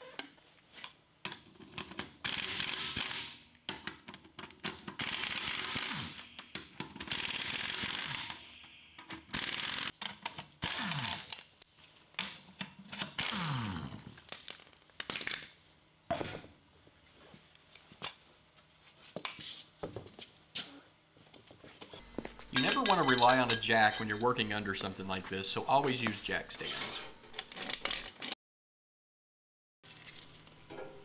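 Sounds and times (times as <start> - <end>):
pneumatic impact wrench hammering: 2.2 - 3.4, 4.9 - 8.5.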